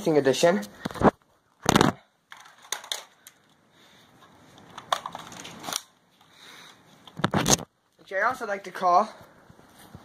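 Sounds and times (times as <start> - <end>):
crunches and sharp clicks: 4.5 - 7.7.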